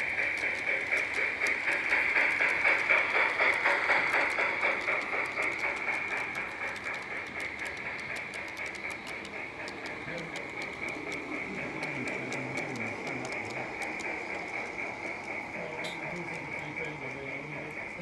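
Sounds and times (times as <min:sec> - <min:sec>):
model train running on track: 0:00.0 - 0:18.0
steady high-pitched hum: 0:05.4 - 0:18.0.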